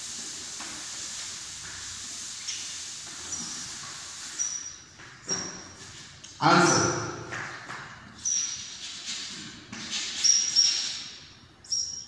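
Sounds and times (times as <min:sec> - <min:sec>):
chalk squeaking: 0:02.3 - 0:06.8, 0:08.2 - 0:12.0
chalk scratching on blackboard: 0:08.2 - 0:11.0.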